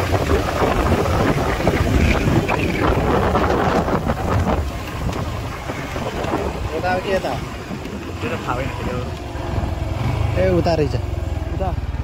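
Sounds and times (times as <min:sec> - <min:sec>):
wind buffeting microphone: 0:00.0 - 0:10.8
motorcycle engine running: 0:00.0 - 0:12.0.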